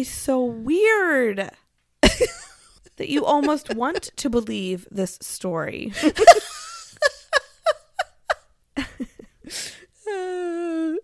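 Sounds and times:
woman laughing: 0:02.0 - 0:04.3, 0:05.9 - 0:11.0.

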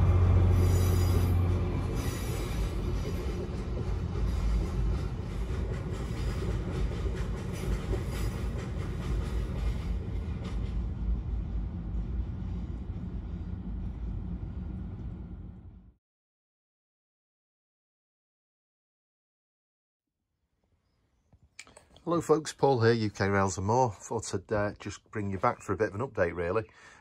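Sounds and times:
train wheels clattering on rails: 0:00.0 - 0:11.5
diesel locomotive engine hum: 0:00.0 - 0:16.0.

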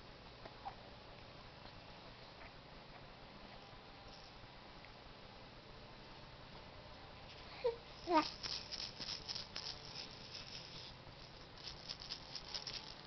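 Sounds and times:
baby cooing: 0:07.6 - 0:08.6
plastic rattle toy shaken: 0:08.0 - 0:13.0.

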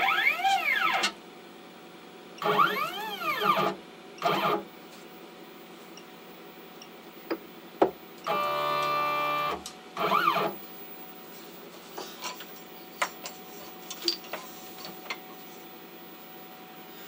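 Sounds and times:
stepper motor whine: 0:02.4 - 0:04.6, 0:08.2 - 0:10.7.

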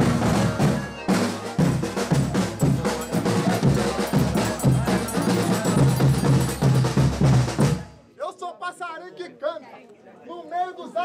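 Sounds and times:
drums and percussion playing: 0:00.0 - 0:08.1.

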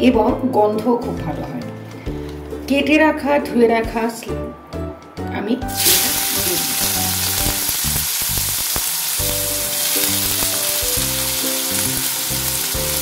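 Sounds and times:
onions sizzling in hot oil: 0:05.7 - 0:13.0.

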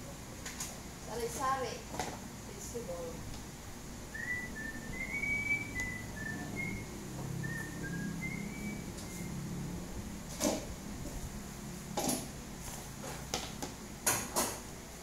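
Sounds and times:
faint low hum: 0:00.0 - 0:12.9
person whistling a slow tune: 0:04.1 - 0:09.4.

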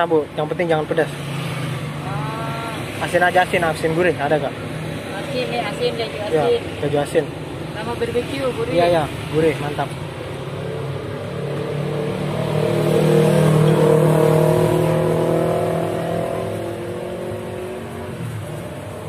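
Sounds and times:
vehicle engine passing by: 0:10.5 - 0:19.0.

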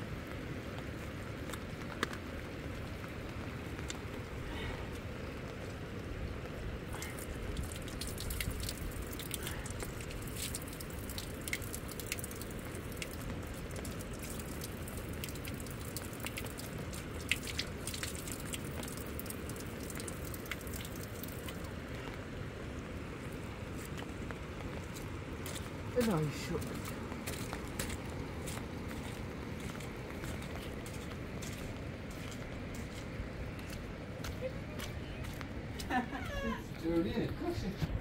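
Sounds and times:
water dripping: 0:01.4 - 0:33.0
steady low rumble: 0:20.4 - 0:38.0.

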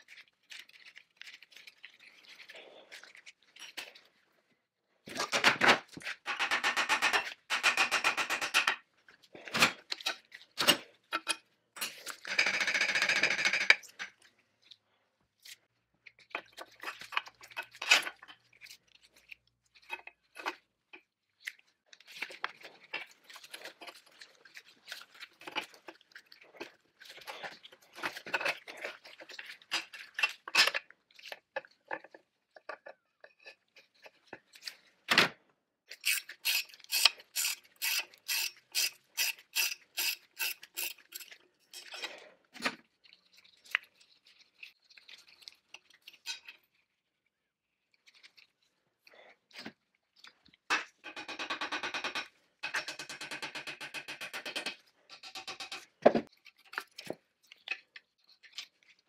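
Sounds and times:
evenly spaced sharp clicks: 0:06.2 - 0:08.8.

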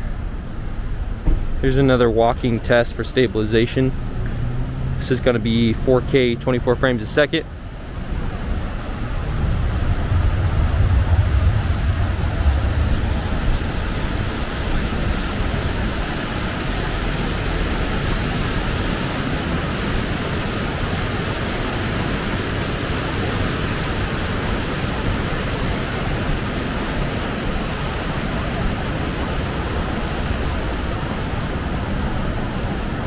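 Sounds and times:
wind on microphone: 0:07.6 - 0:33.0.

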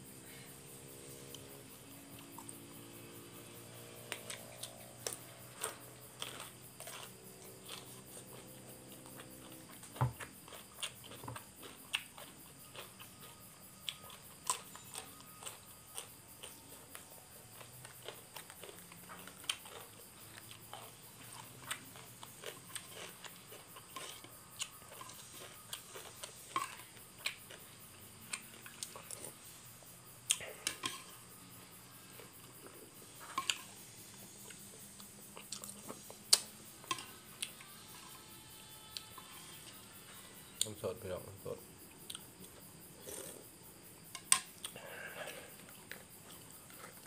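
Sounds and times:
crisp crunching chewing: 0:09.1 - 0:27.6.

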